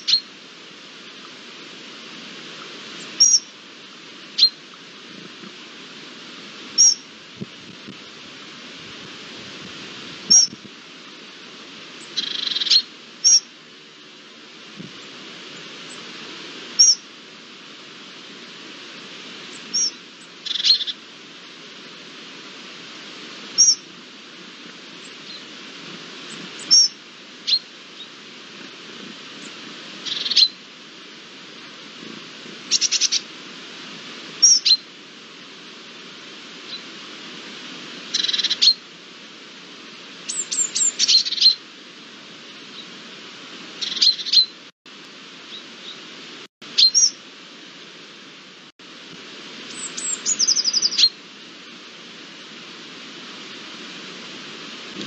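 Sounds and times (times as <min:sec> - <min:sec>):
birds chirping: 0:00.0 - 0:00.3, 0:03.0 - 0:03.5, 0:04.3 - 0:04.8, 0:06.8 - 0:07.1, 0:10.3 - 0:10.6, 0:12.0 - 0:13.5, 0:19.5 - 0:21.0, 0:23.6 - 0:23.9, 0:26.3 - 0:28.2, 0:29.4 - 0:30.6, 0:32.7 - 0:33.3, 0:34.4 - 0:34.9, 0:38.1 - 0:38.8, 0:40.3 - 0:41.6, 0:43.8 - 0:44.6, 0:46.8 - 0:47.2, 0:49.7 - 0:51.2
steady hiss: 0:00.0 - 0:55.0.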